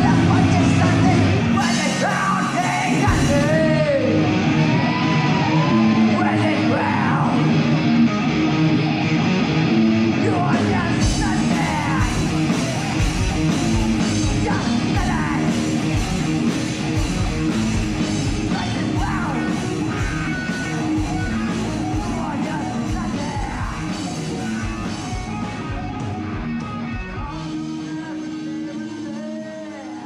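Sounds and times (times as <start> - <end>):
singer yelling and singing: 0.0 - 8.4, 10.0 - 30.0
bass guitar: 0.0 - 30.0
distorted electric guitars: 0.0 - 30.0
drums: 0.0 - 30.0.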